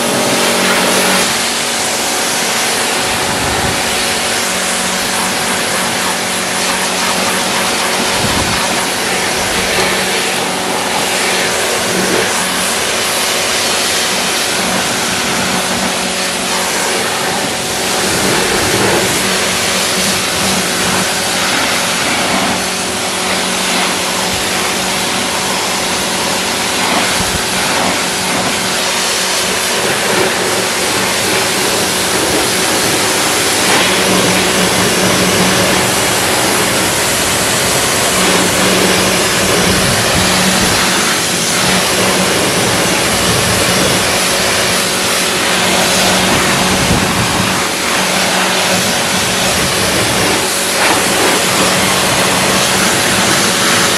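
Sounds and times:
high-pressure water jet hissing: 0.0 - 53.9
pressure washer motor humming: 0.0 - 53.9.

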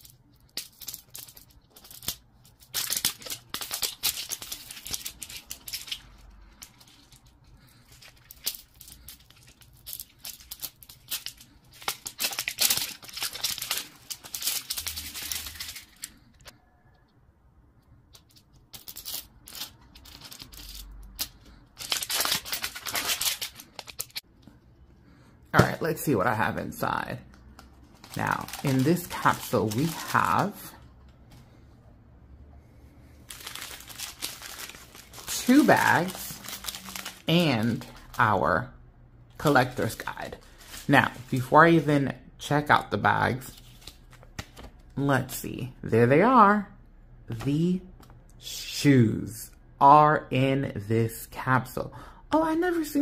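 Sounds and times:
plastic film wrapper crinkling: 0.0 - 16.5, 18.2 - 24.2, 27.4 - 30.8, 33.2 - 38.4, 39.4 - 41.5.

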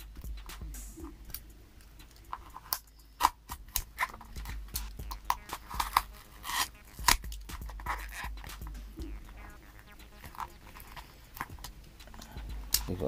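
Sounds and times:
packing tape crackling: 2.0 - 8.6, 10.0 - 12.9
tape tearing: 2.4 - 4.6, 5.2 - 8.5.

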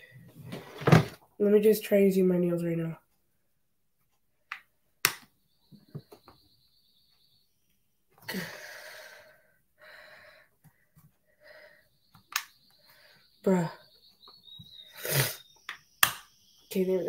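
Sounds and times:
huffs of breath: 8.2 - 11.9.

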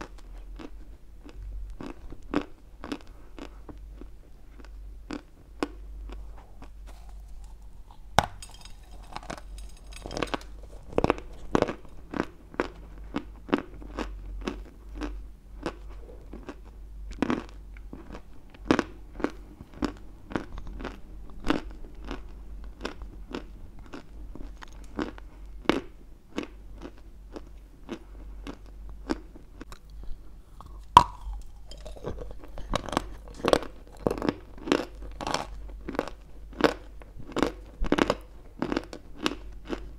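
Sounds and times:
crunchy chewing of dry clay: 0.0 - 39.9.

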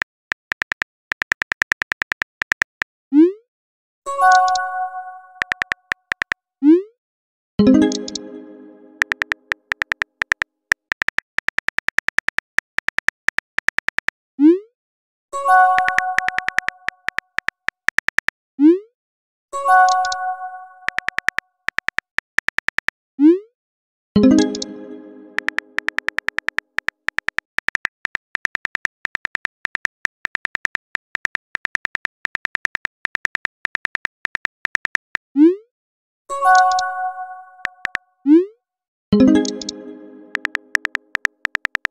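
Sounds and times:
keyboard typing clicks: 0.0 - 2.9, 4.2 - 4.6, 5.4 - 6.4, 7.8 - 8.4, 9.0 - 14.1, 15.7 - 18.3, 19.8 - 20.2, 20.8 - 22.9, 24.2 - 35.2, 36.5 - 36.9, 37.6 - 38.0, 39.3 - 41.9
synth chime: 24.2 - 25.8.

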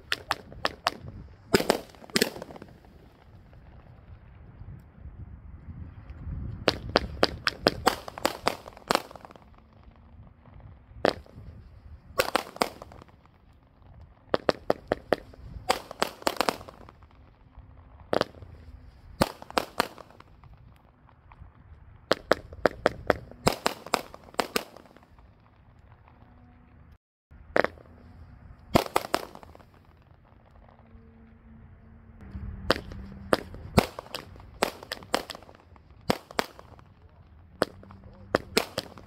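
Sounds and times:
firework salute bangs: 0.0 - 4.1, 6.6 - 21.2, 22.0 - 26.1, 28.7 - 30.5, 32.6 - 39.0.

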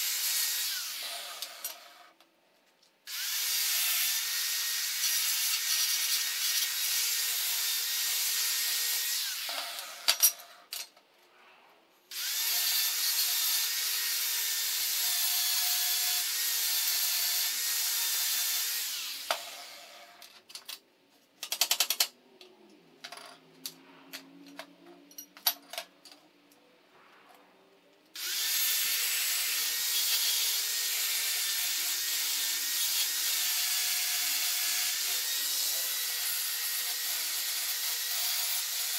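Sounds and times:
angle grinder whining: 3.1 - 10.4, 12.1 - 20.3, 28.2 - 38.9
metal parts clanking on table: 10.0 - 11.0, 23.0 - 26.2.

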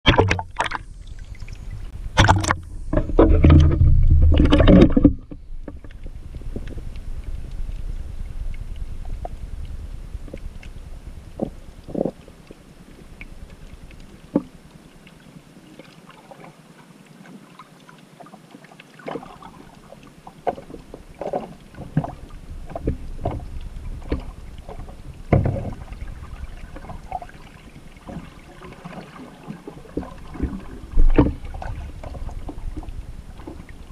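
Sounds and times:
water sloshing against camera: 0.0 - 33.9
short underwater clicks and knocks: 0.1 - 1.6, 2.2 - 7.9, 19.0 - 26.1, 29.9 - 33.7.

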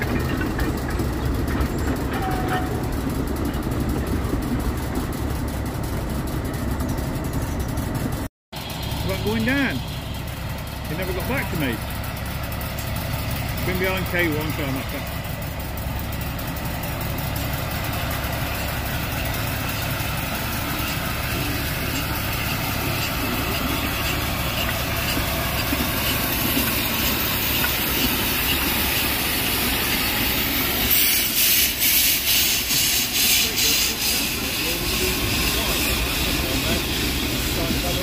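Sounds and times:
steam locomotive chuffing: 0.0 - 38.0
steam locomotive hissing: 8.6 - 38.0.

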